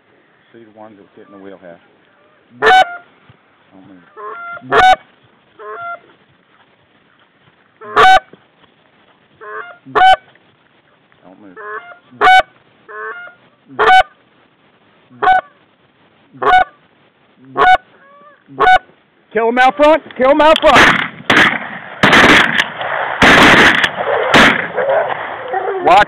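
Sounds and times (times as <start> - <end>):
goose call honks: 2.5 - 3.1, 4.1 - 6.0, 7.8 - 8.3, 9.4 - 10.3, 11.5 - 14.2, 15.2 - 15.6, 16.4 - 16.8, 17.5 - 18.9.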